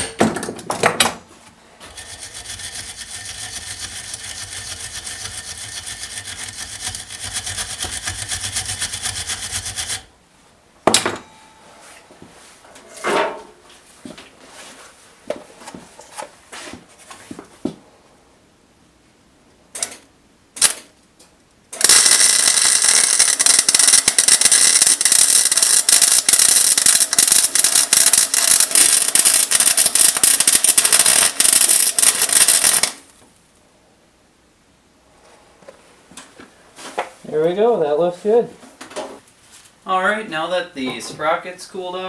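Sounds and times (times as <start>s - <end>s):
welder arc crackling: 1.9s - 10.1s, 21.7s - 33.2s
short sharp welding bursts: 21.8s - 33.0s.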